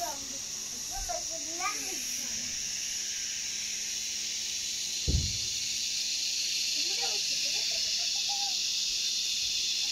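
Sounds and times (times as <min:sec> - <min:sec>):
insect chorus drone: 0:00.0 - 0:09.9
dull thump: 0:05.0 - 0:05.6.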